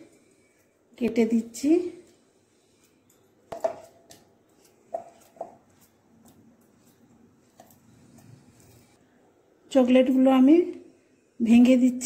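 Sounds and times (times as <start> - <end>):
knife slicing banana: 2.8 - 8.9.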